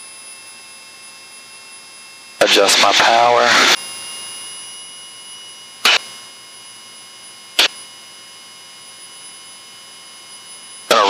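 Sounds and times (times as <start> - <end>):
high electrical whine: 0.0 - 11.0
sharp click: 5.8 - 6.0.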